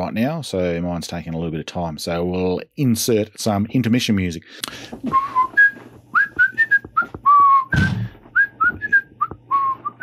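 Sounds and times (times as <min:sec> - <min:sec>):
man whistling a tune: 0:05.1 - 0:10.0.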